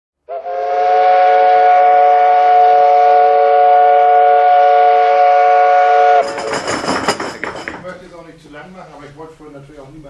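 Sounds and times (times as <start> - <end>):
steam whistle blast: 0.2 - 6.2.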